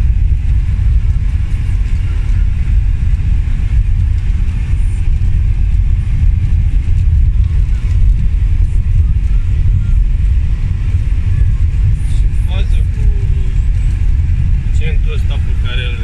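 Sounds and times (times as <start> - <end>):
car tyres rumbling on cobbles: 0.0 - 16.0.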